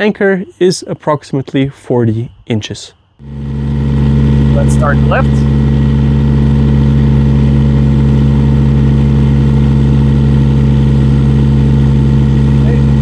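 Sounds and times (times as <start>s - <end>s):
diesel engine running: 3.2s - 13.0s.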